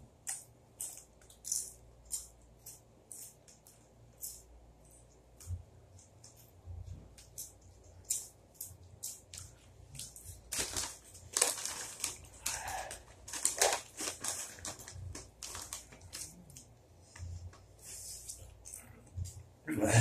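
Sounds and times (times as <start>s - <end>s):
chips being chewed: 0.2s - 6.6s, 7.2s - 16.7s.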